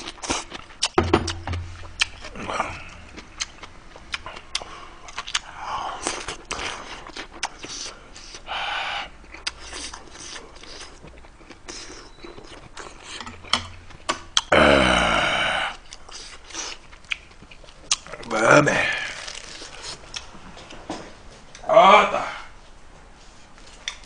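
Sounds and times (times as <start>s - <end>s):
person chewing food: 0.0s - 8.5s, 9.2s - 14.5s, 15.7s - 18.3s, 19.1s - 20.8s
breathy exhale: 8.5s - 9.1s.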